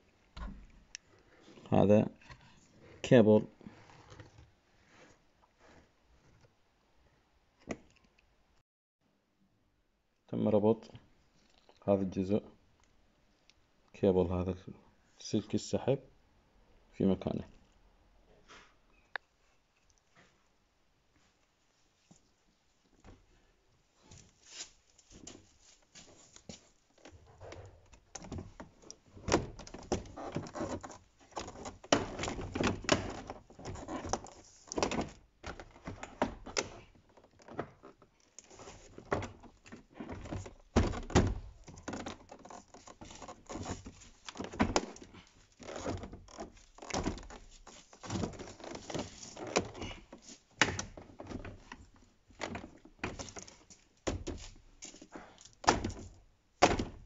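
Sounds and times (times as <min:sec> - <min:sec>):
plastic panel thuds and clicks: 0:40.2 - 0:42.2, 0:55.6 - 0:57.0.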